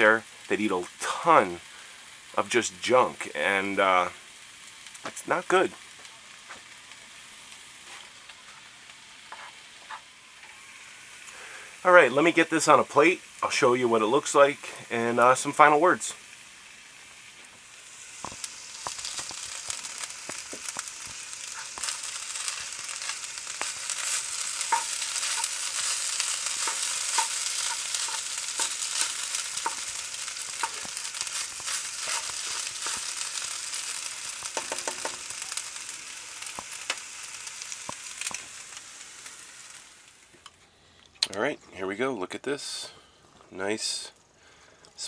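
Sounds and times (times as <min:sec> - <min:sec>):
food sizzling in a skillet: 0:00.0 - 0:40.5
utensil scraping a pan: 0:20.3 - 0:33.5.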